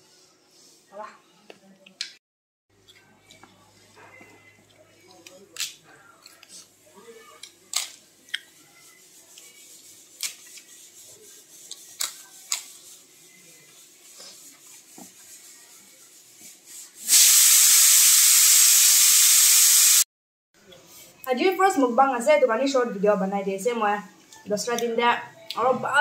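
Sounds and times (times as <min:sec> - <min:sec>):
loud static hiss: 0:17.1 - 0:20.0.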